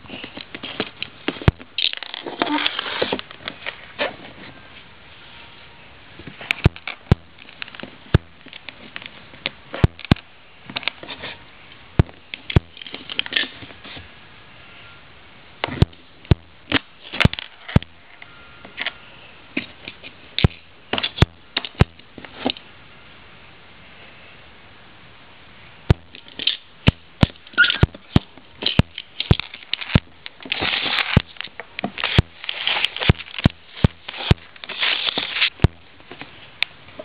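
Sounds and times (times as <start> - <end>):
plastic bricks clicking and knocking: 25.9 - 35.8.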